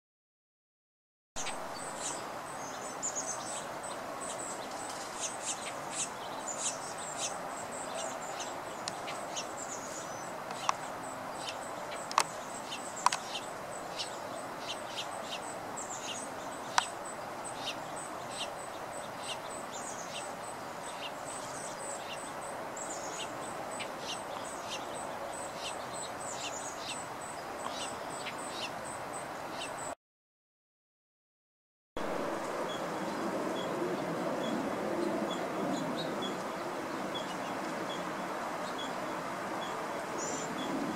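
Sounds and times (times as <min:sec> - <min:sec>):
background hiss: 0:01.4 - 0:29.9
small birds chirping: 0:01.4 - 0:30.0, 0:32.4 - 0:40.9.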